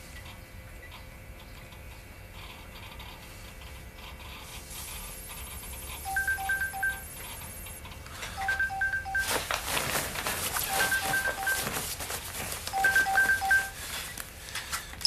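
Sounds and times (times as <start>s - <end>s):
electronic ringtone beeps: 6.1s - 7.1s, 8.4s - 9.3s, 10.6s - 11.7s, 12.7s - 13.8s.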